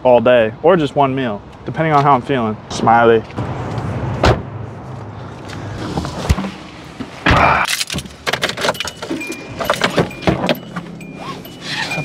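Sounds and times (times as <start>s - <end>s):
handling clicks and rattles: 7.7s - 12.0s.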